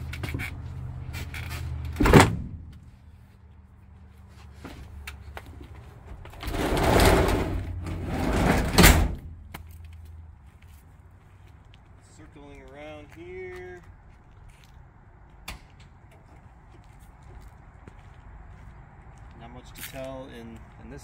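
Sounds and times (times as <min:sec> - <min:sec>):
door banging shut: 0:02.0 - 0:02.6, 0:08.2 - 0:09.3
sliding door rolling on track: 0:06.4 - 0:09.2.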